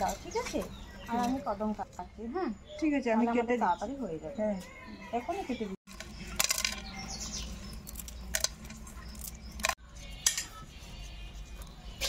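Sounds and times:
crab shells cracking: 7.7 - 9.8.

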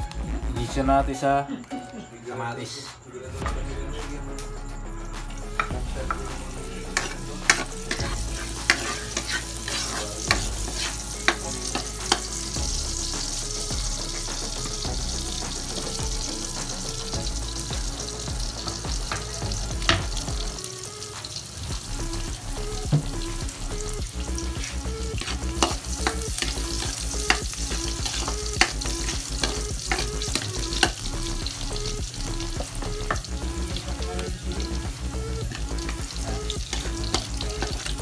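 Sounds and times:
garlic sizzling in hot oil: 5.5 - 38.0
spatula scraping and tapping wok: 6.9 - 12.4, 24.6 - 31.1.

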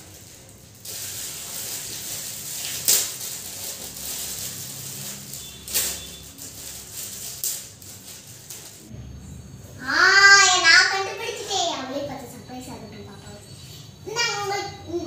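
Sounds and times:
sharp foil rips: 0.0 - 8.8
foil gift wrap crinkling: 0.0 - 8.9.

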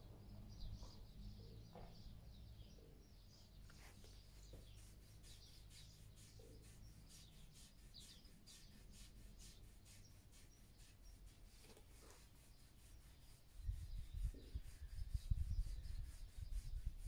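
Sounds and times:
hands rubbing horse's coat: 2.8 - 17.0.

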